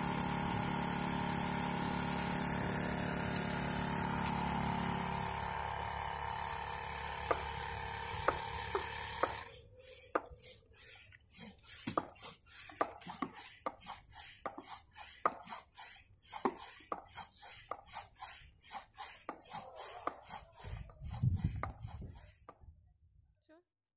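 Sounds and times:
engine-like hum: 0.0s - 10.8s
hand pump hissing puffs: 0.0s - 22.6s
pump clicks: 6.8s - 22.6s.

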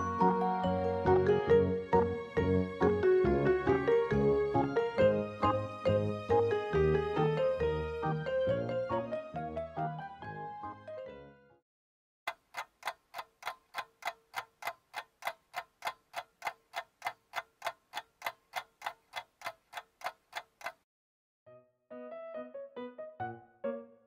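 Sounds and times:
clock ticking: 12.3s - 20.8s.

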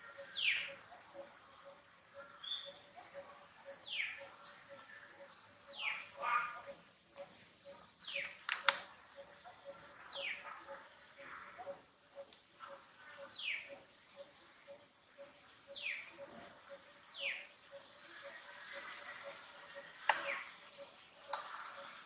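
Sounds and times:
faint ticking pulse: 0.0s - 22.0s
sharp click: 8.2s - 8.9s.

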